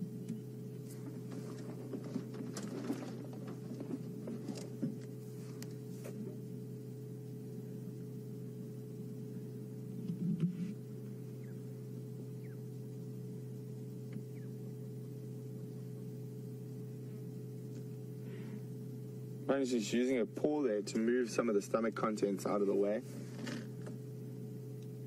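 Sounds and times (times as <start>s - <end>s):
vehicle engine idling: 0.0s - 9.8s, 10.6s - 20.4s.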